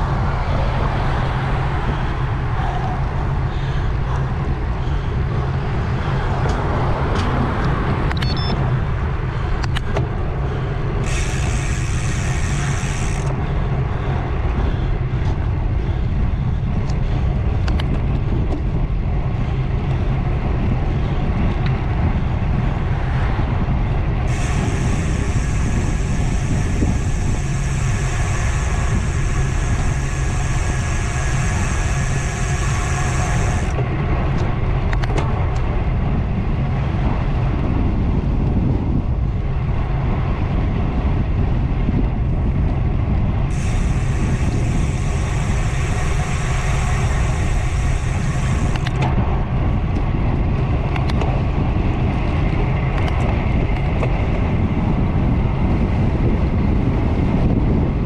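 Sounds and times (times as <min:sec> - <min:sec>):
bicycle freehub buzzing: 0:00.0 - 0:58.0
wind and road rumble: 0:00.0 - 0:58.0.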